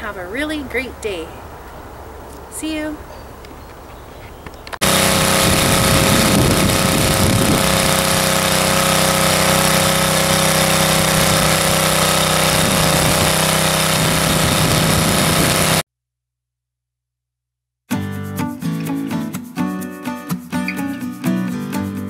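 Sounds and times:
rototiller engine running: 4.8 - 15.8.

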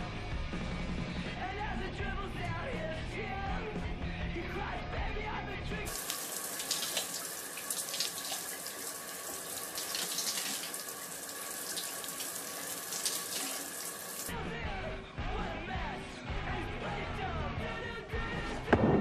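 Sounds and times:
shower water spraying: 5.9 - 14.3.

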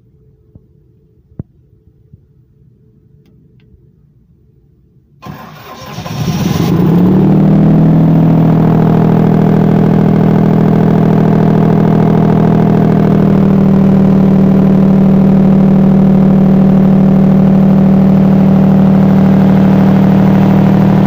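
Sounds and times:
diesel generator engine starting: 5.2 - 21.0.

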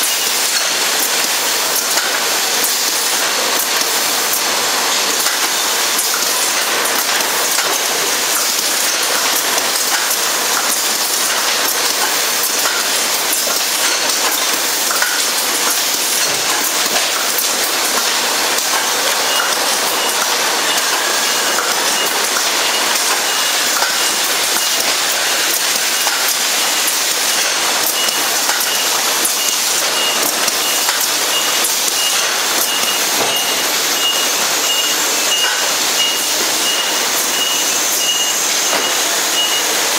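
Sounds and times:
high beep: 19.3 - 24.9, 27.3 - 39.8.

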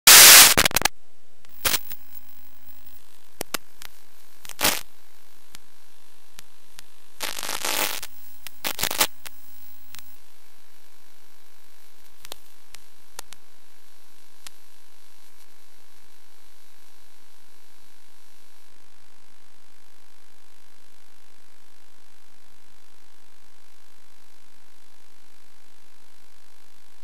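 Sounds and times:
crackling interference: 0.0 - 25.4
white noise static: 0.0 - 27.0
steady hiss: 0.1 - 13.4.

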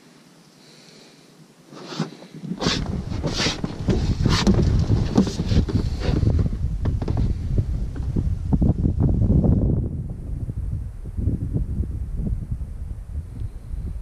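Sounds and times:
short sharp noises: 1.7 - 4.8
wind buffeting microphone: 2.5 - 14.0.

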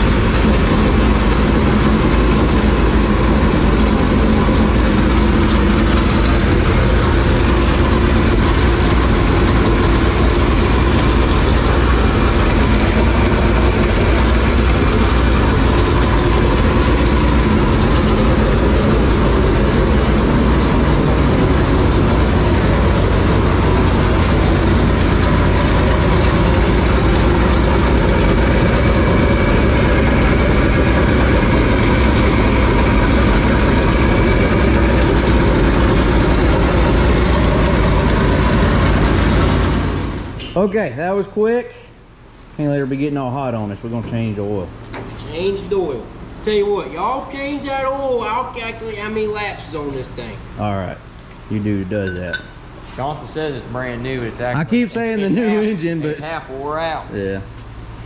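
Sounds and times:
race car engine idling: 0.0 - 40.4.

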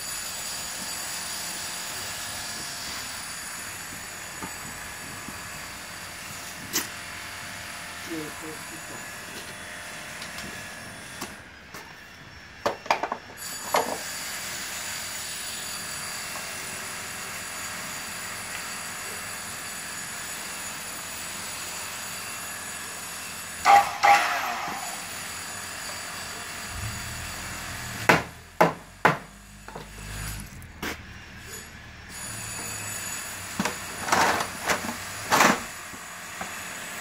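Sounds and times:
high-pitched machine whine: 7.4 - 37.0
wood and tools knocking: 12.6 - 14.0, 28.1 - 29.9.

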